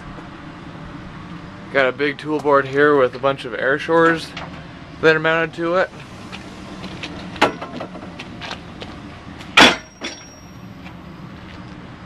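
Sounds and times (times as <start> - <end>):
steady low hum: 0.0 - 12.0
metal tool board clanking: 7.3 - 8.1, 9.6 - 10.5
metallic ring: 9.6 - 10.8.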